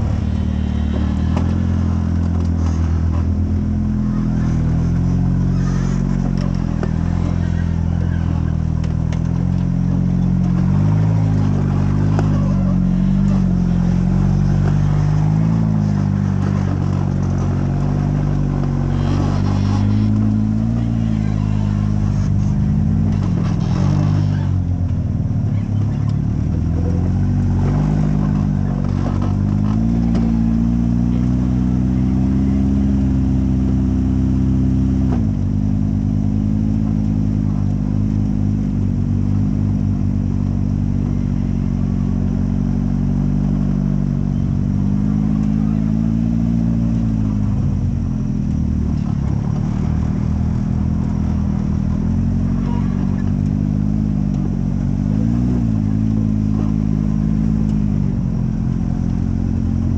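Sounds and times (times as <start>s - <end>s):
buggy engine revving under load: 0.0s - 59.9s.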